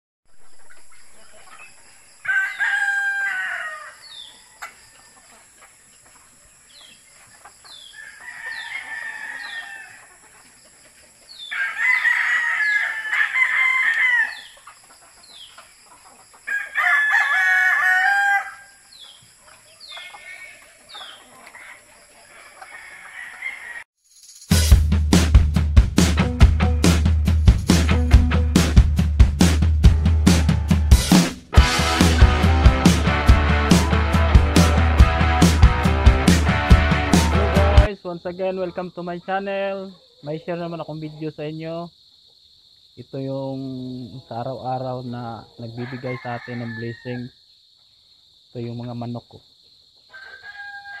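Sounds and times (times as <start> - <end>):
chickens clucking softly: 0.4 - 2.0, 4.2 - 11.9, 13.8 - 16.8, 18.9 - 23.8
roosters crowing: 0.6 - 5.8, 7.4 - 23.9, 30.0 - 37.9, 45.2 - 47.4, 50.1 - 51.0
music with drum beat: 24.4 - 37.9.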